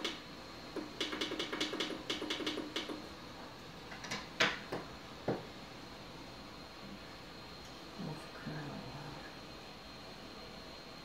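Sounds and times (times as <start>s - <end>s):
sharp clicks: 0.8s - 3.0s.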